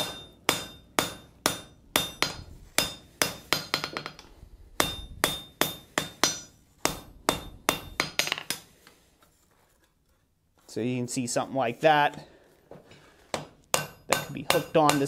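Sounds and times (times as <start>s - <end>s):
hammer forging iron on anvil: 0.0s - 8.6s, 13.3s - 15.0s.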